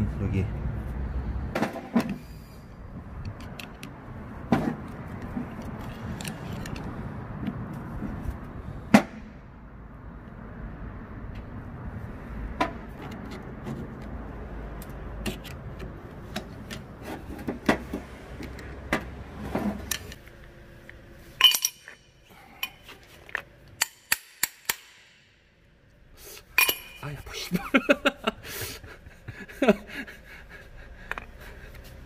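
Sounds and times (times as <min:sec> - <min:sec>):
metal parts and tools clinking: 0:05.8 - 0:06.9, 0:21.3 - 0:25.3, 0:26.6 - 0:27.3.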